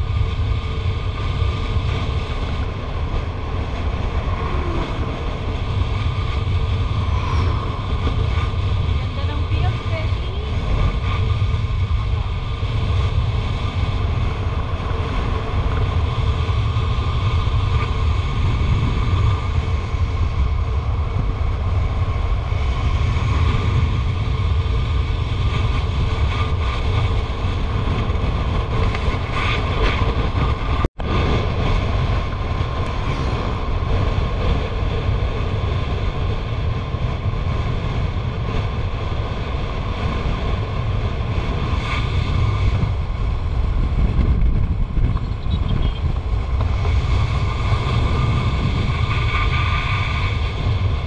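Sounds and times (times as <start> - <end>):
motorcycle engine and tyre drone: 0.0 - 51.0
wind buffeting microphone: 0.0 - 51.0.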